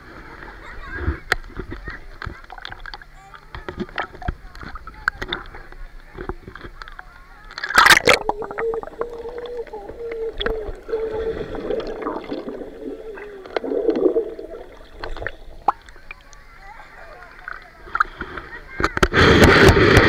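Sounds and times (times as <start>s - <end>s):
water splashing: 1.8s - 20.0s
muffled underwater hum: 2.8s - 16.7s
bubbling gurgles: 7.5s - 16.6s.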